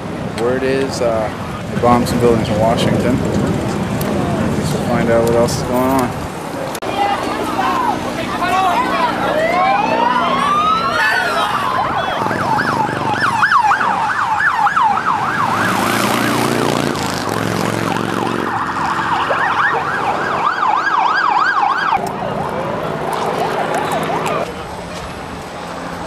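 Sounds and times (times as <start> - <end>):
low steady drone: 6.8 - 12.6
emergency vehicle siren: 6.8 - 24.9.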